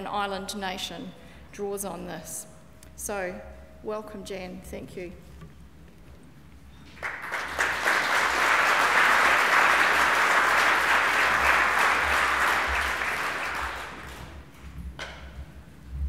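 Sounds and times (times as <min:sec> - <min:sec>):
audience applauding: 0:06.9 - 0:14.5.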